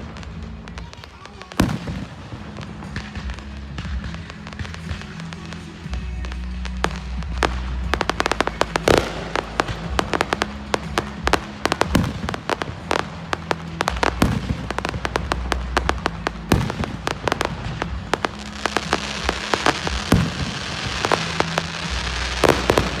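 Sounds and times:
fireworks bursting: 0.0s - 23.0s
fireworks crackling: 0.0s - 23.0s.

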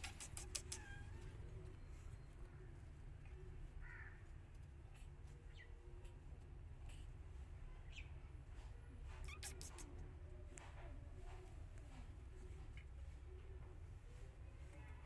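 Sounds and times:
faint animal call: 0.0s - 4.2s, 9.2s - 10.0s.

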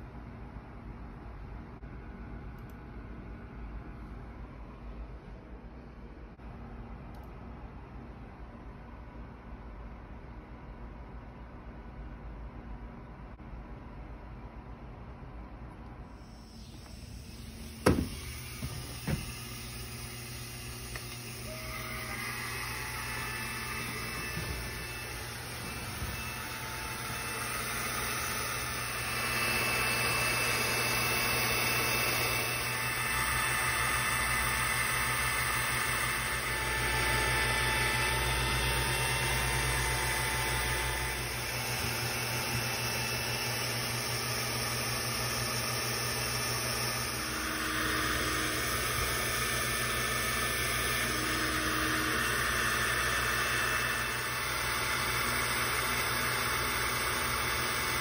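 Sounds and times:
laser engraver fan and motor whir: 15.9s - 58.0s.

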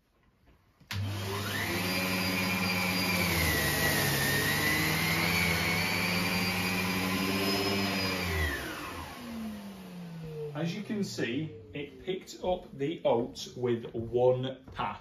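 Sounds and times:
vacuum cleaner motor whine: 0.9s - 12.0s.

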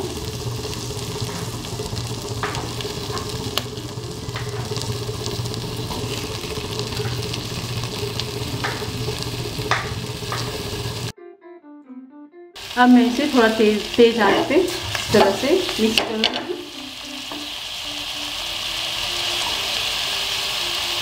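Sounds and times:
butter sizzling in a pot: 0.0s - 11.1s, 12.6s - 21.0s
food pieces knocking into pan: 0.1s - 11.1s, 14.2s - 17.6s.

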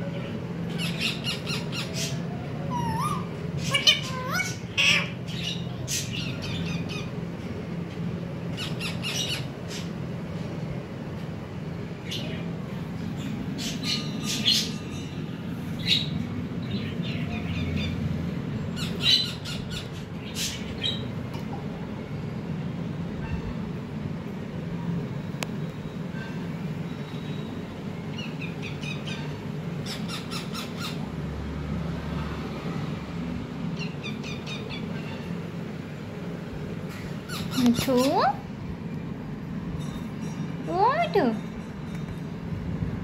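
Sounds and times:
parakeets squawking: 0.7s - 7.2s, 8.5s - 10.0s, 13.2s - 18.0s, 18.8s - 21.1s, 28.2s - 31.0s, 33.8s - 35.4s, 37.0s - 38.4s.

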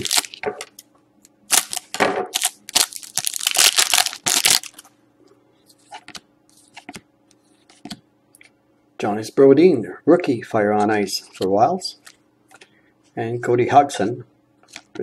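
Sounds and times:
foil pack crinkling and tearing: 0.0s - 0.4s, 1.5s - 4.9s.

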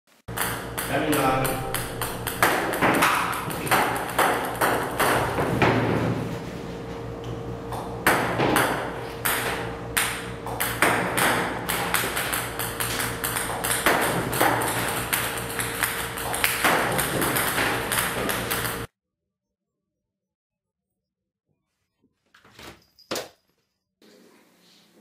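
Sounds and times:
ping-pong balls striking table: 0.3s - 6.0s, 7.8s - 18.9s
steady low hum: 0.3s - 18.9s.

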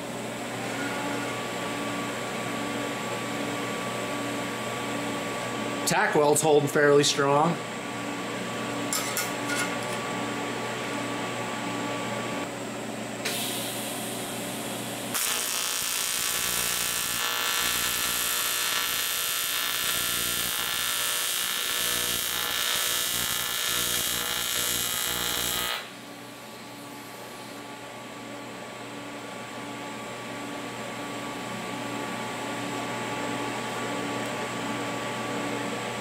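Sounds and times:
welding arc buzzing hiss: 13.2s - 27.5s.

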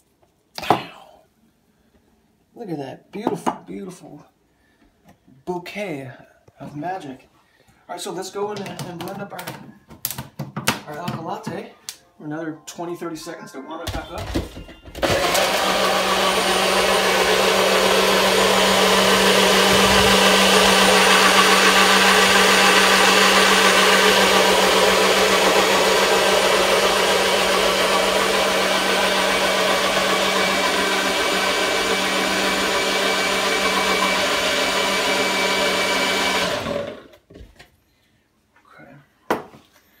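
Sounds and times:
blender whirring: 15.0s - 37.2s.

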